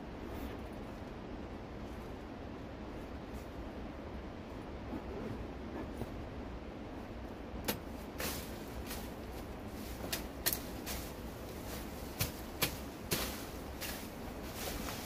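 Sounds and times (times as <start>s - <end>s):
dry plants crackling and snapping: 7.6s - 15.0s
footsteps through dry leaves: 8.0s - 15.0s.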